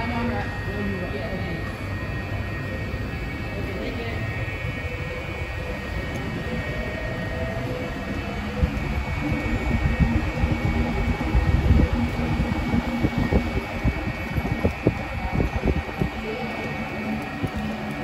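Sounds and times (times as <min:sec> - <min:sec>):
faint steady whine: 0:00.0 - 0:18.0
machinery hum and rumble: 0:00.0 - 0:18.0
low thumps and rumbling: 0:04.0 - 0:18.0.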